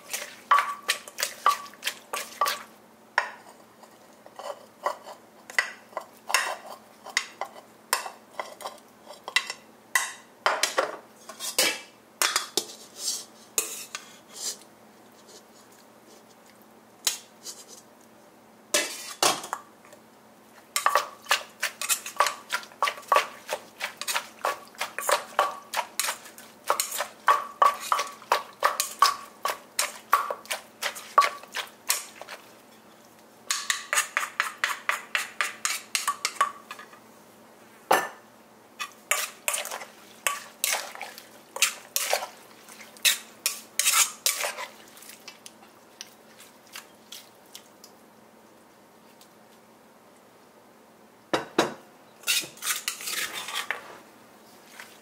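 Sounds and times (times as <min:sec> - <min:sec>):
spoon turning the mix: 0:00.0 - 0:09.6, 0:20.6 - 0:32.9, 0:33.5 - 0:36.9, 0:38.8 - 0:47.7, 0:52.2 - 0:53.8.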